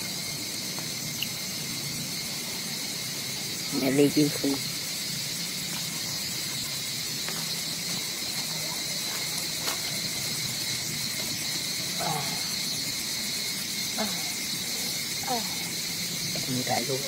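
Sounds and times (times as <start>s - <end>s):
insect chorus drone: 0.0s - 17.0s.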